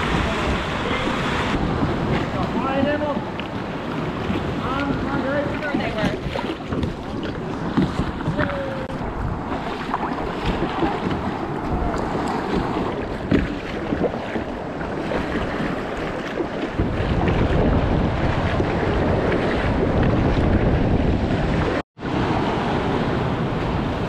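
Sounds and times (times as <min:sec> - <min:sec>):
water splashing around kayak: 0:00.0 - 0:24.0
wind rumbling on microphone: 0:00.0 - 0:24.0.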